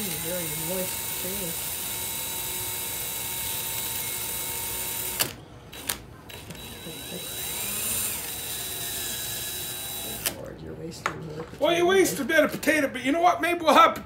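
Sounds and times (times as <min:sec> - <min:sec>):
cordless drill running: 0:00.0 - 0:10.4.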